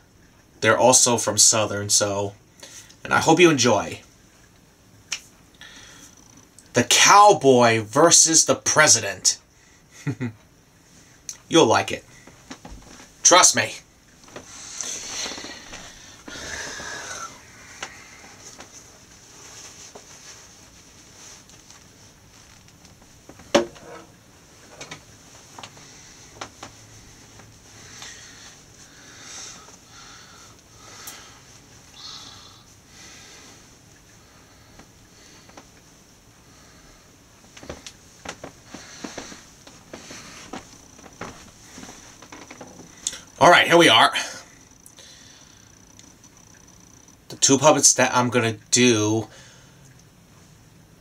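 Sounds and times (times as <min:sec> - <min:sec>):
rustling with falling hiss: 0:09.5 - 0:43.4.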